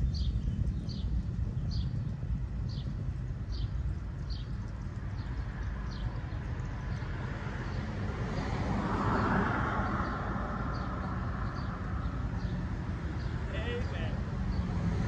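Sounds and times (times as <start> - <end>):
low outdoor rumble: 0.0 - 8.8, 10.2 - 15.0
car passing: 5.1 - 15.0.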